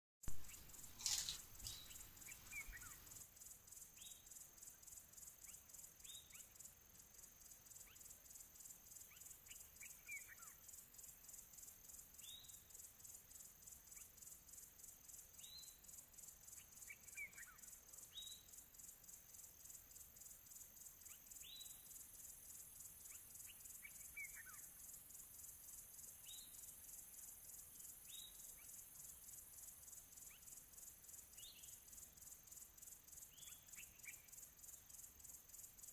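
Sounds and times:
insect trilling: 0.2 - 6.7.

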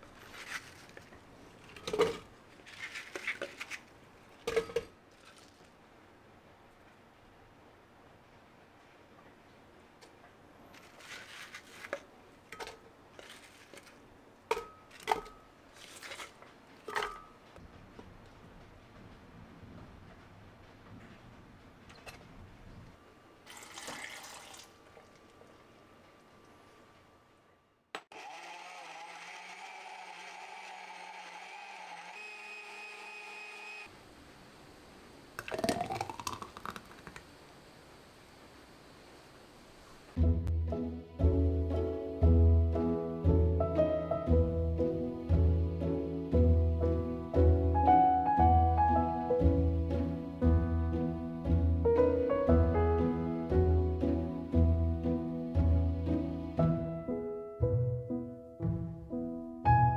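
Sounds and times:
leaves rustling: 0.0 - 1.8, 10.6 - 12.1, 13.1 - 14.1
liquid pouring into glass: 23.5 - 24.7, 35.4 - 37.2
blender motor whining: 28.1 - 33.9.

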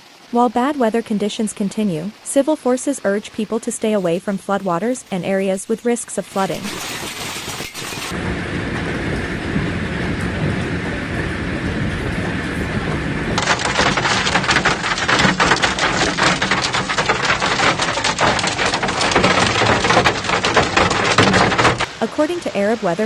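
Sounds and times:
heavy rain: 0.0 - 23.0
hailstones striking a surface: 5.3 - 8.2, 13.4 - 22.8.

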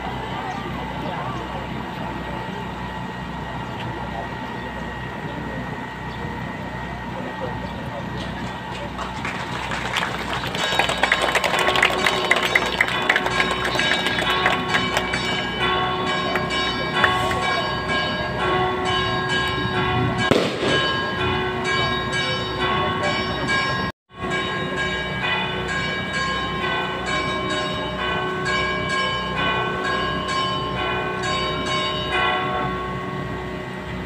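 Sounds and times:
church bells pealing: 0.0 - 34.0
sharp bang: 20.2 - 21.5.

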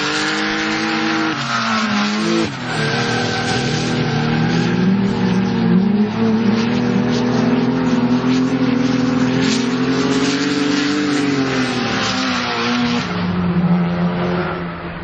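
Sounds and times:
car engines revving high: 0.0 - 15.0
tyres squealing on tarmac: 0.6 - 6.9.

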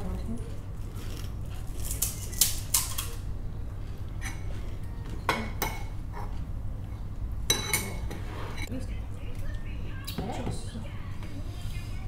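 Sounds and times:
low steady hum: 0.0 - 12.0
cutlery clinking on plates: 7.5 - 8.7.

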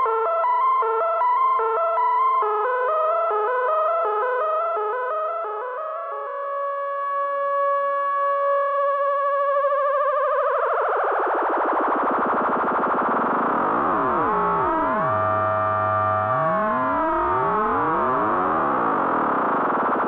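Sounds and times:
synthesizer tone wobbling and gliding: 11.0 - 20.0.

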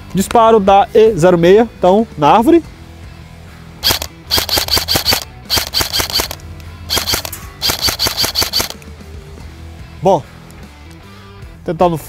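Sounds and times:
airsoft rifle firing: 3.8 - 8.8.

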